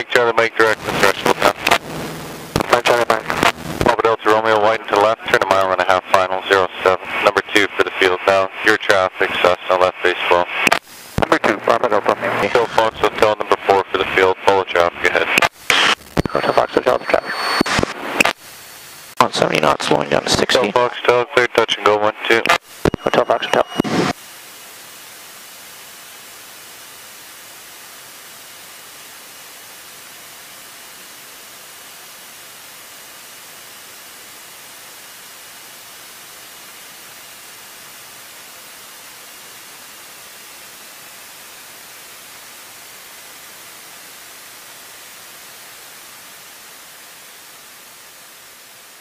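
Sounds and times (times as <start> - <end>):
headset audio hiss: 0.0 - 49.0
faint high thin whine: 0.4 - 27.7.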